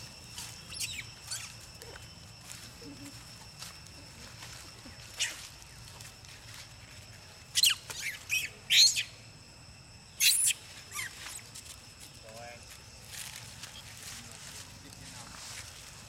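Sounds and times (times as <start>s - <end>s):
monkey squealing shrilly: 7.6s - 9.1s, 10.2s - 11.4s.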